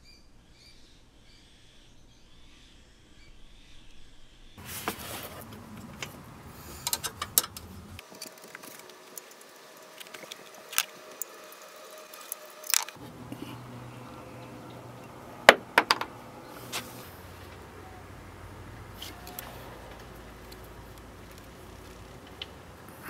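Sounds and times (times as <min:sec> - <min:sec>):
wrench clicking on metal nuts: 0:05.9 - 0:08.6.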